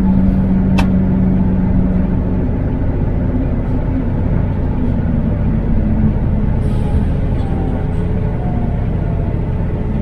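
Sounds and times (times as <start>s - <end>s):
truck engine rumbling: 0.0s - 10.0s
sharp click: 0.8s - 1.0s.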